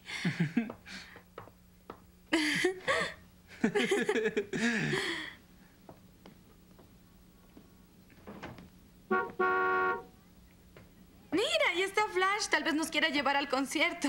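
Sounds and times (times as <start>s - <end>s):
faint clicks and knocks: 5.8s - 8.8s.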